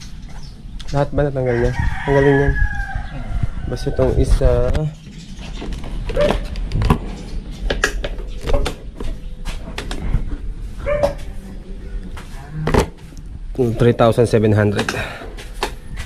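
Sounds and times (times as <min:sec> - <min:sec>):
dog barking: 0:10.8 - 0:11.3.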